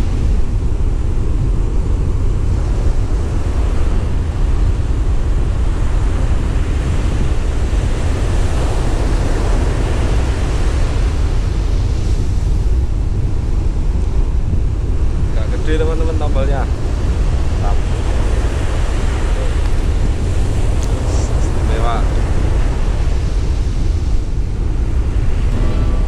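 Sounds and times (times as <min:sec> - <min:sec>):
surf breaking on a beach: 0:00.0 - 0:26.0
wind buffeting the microphone: 0:00.0 - 0:26.0.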